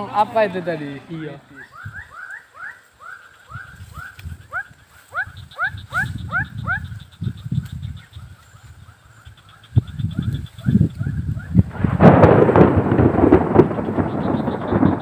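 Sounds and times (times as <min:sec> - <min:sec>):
animal chirping calls: 0:01.5 - 0:11.6
low rumbling bumps: 0:09.8 - 0:15.0.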